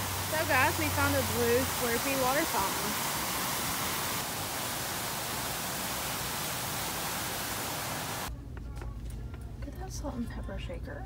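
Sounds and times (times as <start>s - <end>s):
fountain water splashing: 0.0s - 8.3s.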